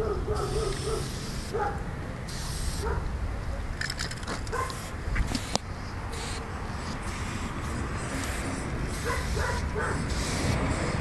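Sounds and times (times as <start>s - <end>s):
dog barking: 0.0s - 1.8s, 2.8s - 3.1s, 4.5s - 4.8s, 9.0s - 10.1s
spray-paint can hissing: 0.4s - 1.6s, 2.3s - 2.8s, 4.6s - 11.0s.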